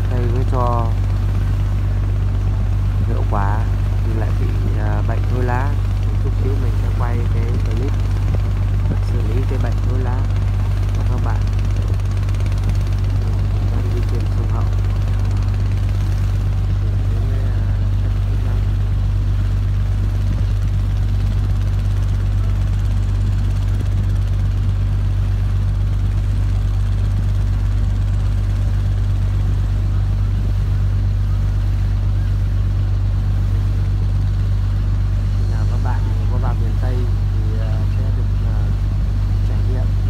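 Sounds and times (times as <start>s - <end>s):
boat engine humming: 0.0s - 40.0s.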